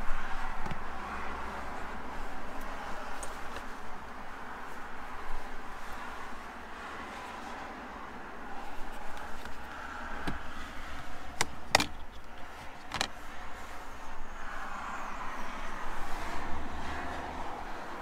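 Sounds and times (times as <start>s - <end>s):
steady background noise: 0.0s - 18.0s
plastic clicks and knocks: 11.4s - 13.1s.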